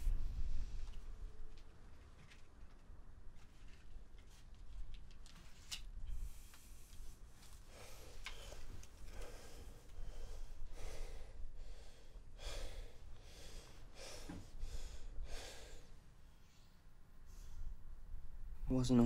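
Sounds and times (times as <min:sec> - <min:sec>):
man breathing heavily: 0:06.1 - 0:17.8.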